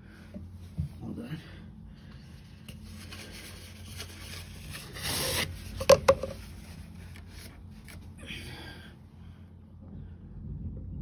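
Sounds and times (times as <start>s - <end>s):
paper towel rubbing on engine: 2.6s - 8.1s.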